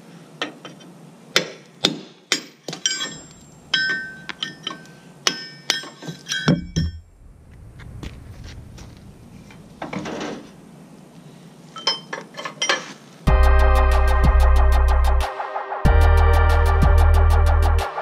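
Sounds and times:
hammer striking steel: 1.4s - 7.0s
light metallic clinks: 2.7s - 7.0s, 11.7s - 12.9s.

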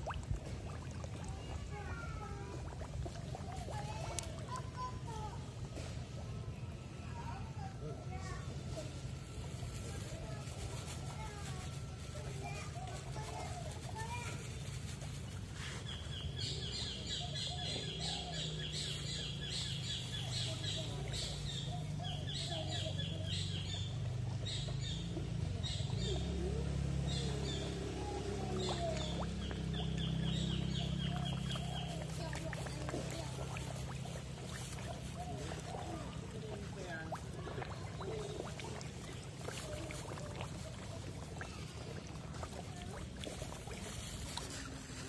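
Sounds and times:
fish gulping water: 0.0s - 6.3s, 23.2s - 45.0s
fish splashing: 0.0s - 6.9s, 9.0s - 45.0s
small birds chirping: 15.2s - 45.0s.

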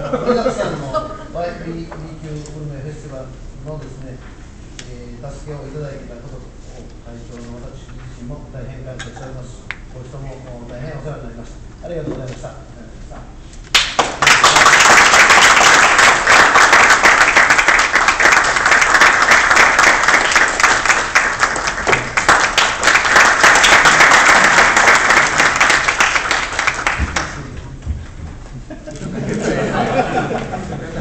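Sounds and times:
audience applauding: 13.8s - 27.6s.

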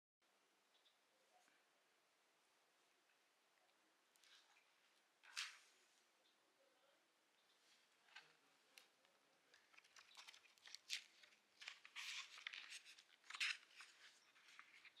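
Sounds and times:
book pages rustling: 7.9s - 15.0s.

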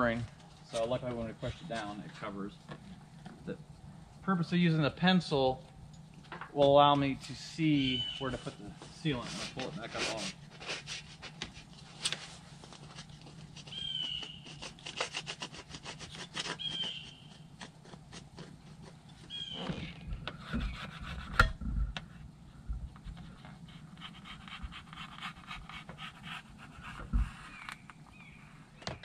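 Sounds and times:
rubbing silicone on steel roof: 8.2s - 22.2s, 22.9s - 27.9s
short high squeaks: 16.2s - 17.4s.

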